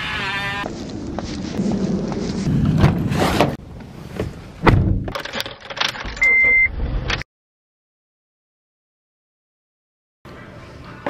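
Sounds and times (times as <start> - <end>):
thud: 4.6 - 5.2
short high beep: 6.2 - 6.7.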